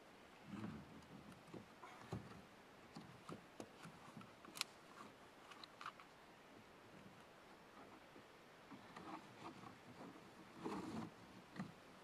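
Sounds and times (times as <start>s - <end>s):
clicks and knocks of straps: 0.6s - 6.2s.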